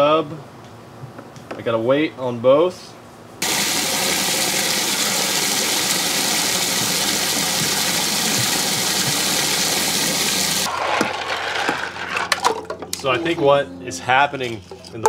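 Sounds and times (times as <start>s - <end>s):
mechanical hum: 0.0s - 15.0s
water churning in tub: 3.4s - 10.7s.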